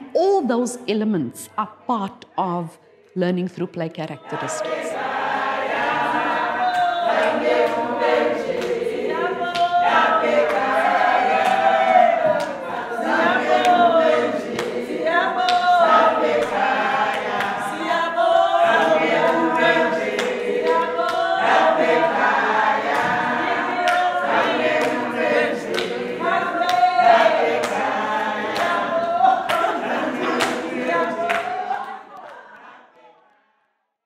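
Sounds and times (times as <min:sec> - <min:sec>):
group singing unaccompanied: 0:04.0 - 0:33.4
hand claps: 0:05.8 - 0:32.7.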